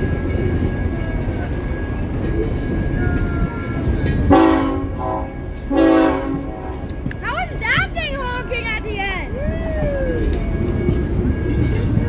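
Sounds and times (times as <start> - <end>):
train rolling past rumble: 0.0 - 12.0
locomotive horn blasts: 4.3 - 7.0.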